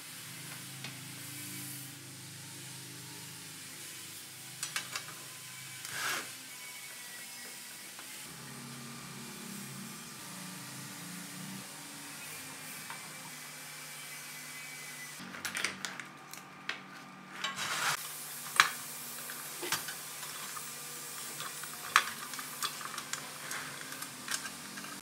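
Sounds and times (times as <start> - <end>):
metal parts clicking and rattling: 19.2 - 25.0.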